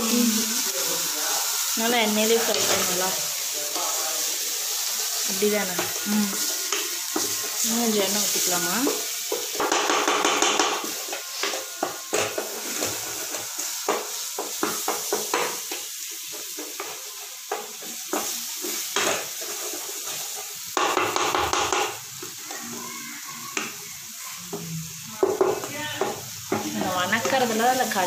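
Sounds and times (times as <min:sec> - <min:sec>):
masala sizzling in oil: 0:00.0 - 0:28.0
wooden spatula scraping pan: 0:10.8 - 0:15.4.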